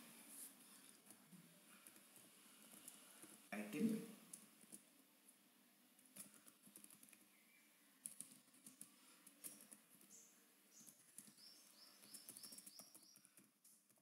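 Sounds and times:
computer keyboard keystrokes: 0:08.0 - 0:09.8, 0:12.1 - 0:14.0.

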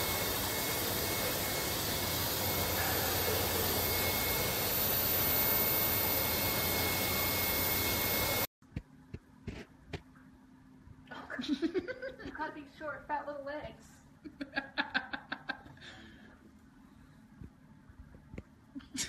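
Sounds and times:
rushing noise with high whine: 0:00.0 - 0:08.5.

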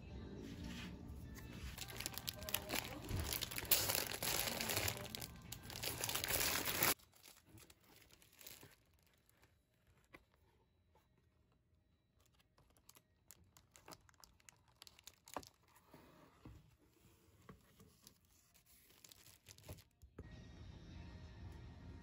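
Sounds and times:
cardboard box rustling: 0:01.7 - 0:10.4.

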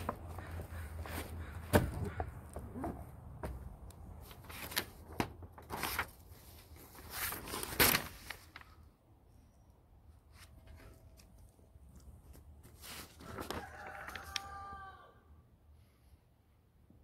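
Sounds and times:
paper pages rustling: 0:04.1 - 0:08.9, 0:10.3 - 0:14.5.

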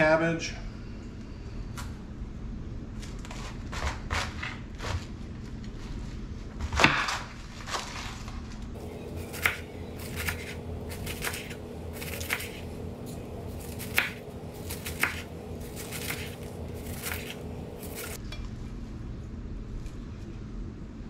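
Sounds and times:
knife cutting cabbage on board: 0:03.0 - 0:05.2, 0:09.2 - 0:18.2
faint steady hum: 0:08.7 - 0:21.0.

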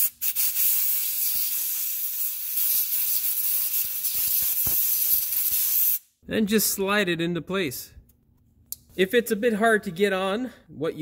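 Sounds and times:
compressed air blow gun hissing: 0:00.0 - 0:06.0.

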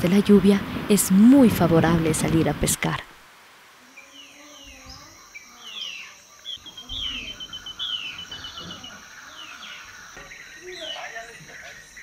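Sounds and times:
high-pitched insect buzz: 0:03.8 - 0:12.0
bird fast trill: 0:05.6 - 0:11.0.

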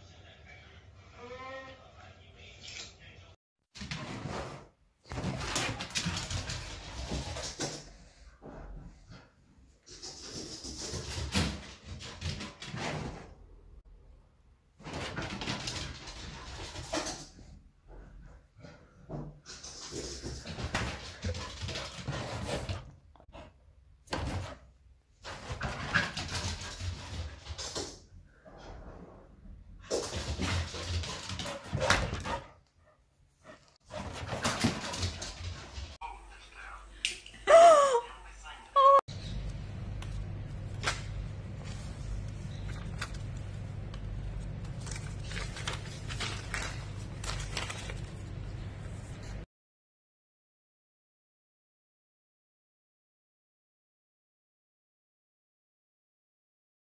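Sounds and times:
low hum: 0:39.1 - 0:49.4
paper banknotes crinkling: 0:40.5 - 0:49.2.

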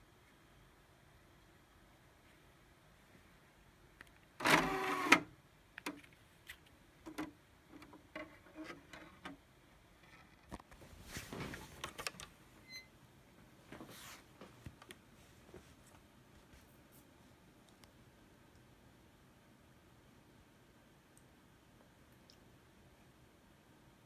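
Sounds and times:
cd tray motor whir: 0:04.4 - 0:05.3
clicks and handling sounds: 0:05.7 - 0:09.4, 0:10.0 - 0:12.4.

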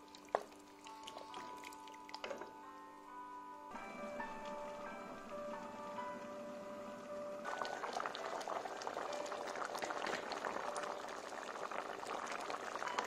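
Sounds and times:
thick sauce bubbling in a pot: 0:00.0 - 0:02.4, 0:07.5 - 0:13.0.

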